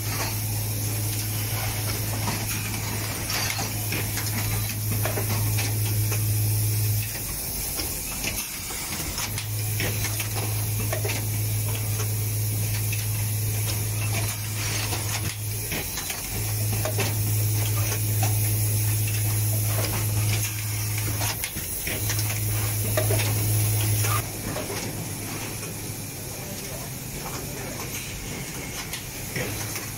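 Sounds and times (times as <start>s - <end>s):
pneumatic actuators clicking: 0.0s - 29.9s
machine low hum: 8.9s - 29.9s.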